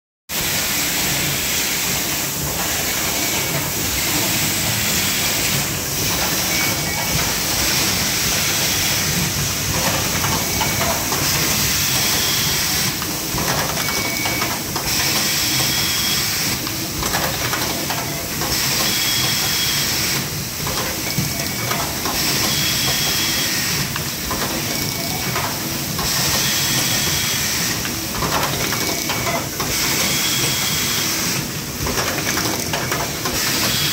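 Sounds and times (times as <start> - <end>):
machinery air hiss: 0.3 - 13.4, 25.8 - 28.1
pneumatic actuators clacking: 0.4 - 33.9.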